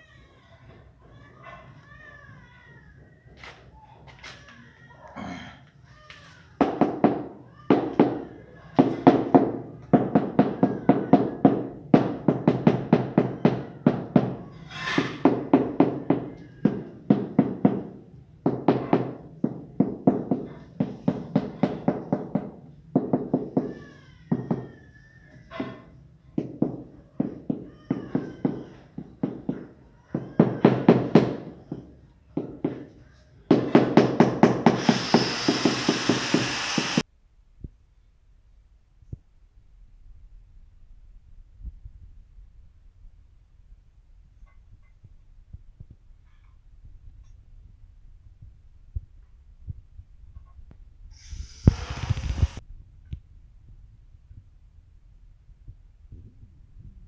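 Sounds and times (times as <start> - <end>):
steady hiss: 51.1 - 52.6.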